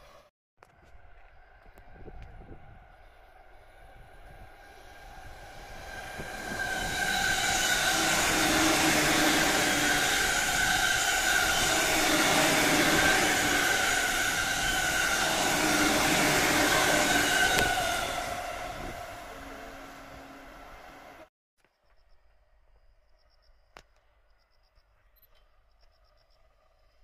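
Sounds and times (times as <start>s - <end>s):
train wheels rushing on rail: 1.0s - 21.3s.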